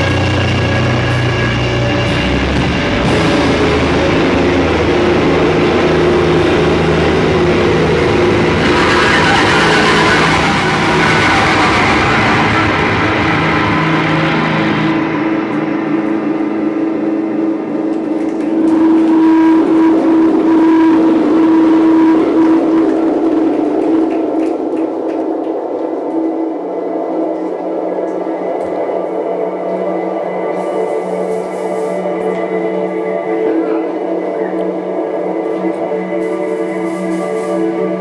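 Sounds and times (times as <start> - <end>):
band playing distorted electric guitar: 0.0 - 17.4
droning guitar tone: 0.0 - 38.0.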